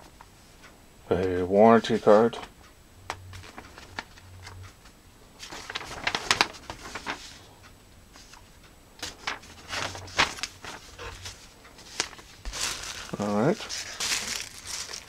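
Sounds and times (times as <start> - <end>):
paper rustling: 3.3 - 4.6, 5.4 - 7.5, 9.0 - 15.0.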